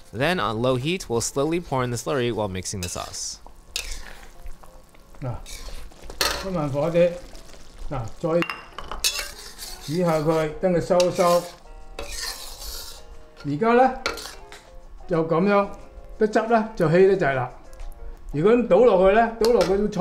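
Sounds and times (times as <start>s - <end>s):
sauce sizzling lightly: 0.0s - 14.8s
metal spatula scraping wok: 2.8s - 4.4s, 5.4s - 7.8s, 9.0s - 14.7s.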